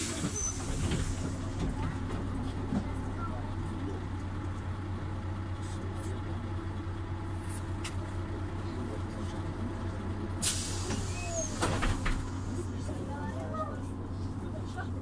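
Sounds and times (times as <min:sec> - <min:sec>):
bus engine low hum: 0:00.0 - 0:15.0.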